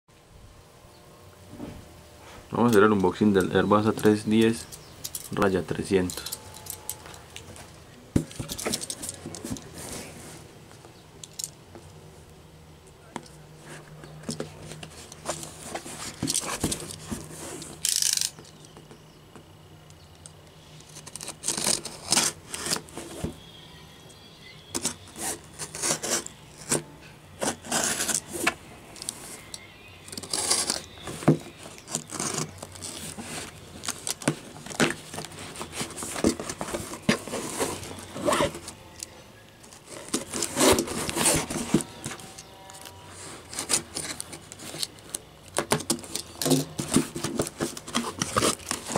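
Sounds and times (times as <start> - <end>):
cardboard box scraping and rustling: 8.2 - 10.5, 13.6 - 17.8, 21.2 - 23.6, 24.6 - 28.6, 30.1 - 38.9, 39.7 - 45.0, 45.7 - 48.9
tape tearing: 14.2 - 18.7, 20.8 - 23.4, 24.7 - 38.9, 39.6 - 48.9.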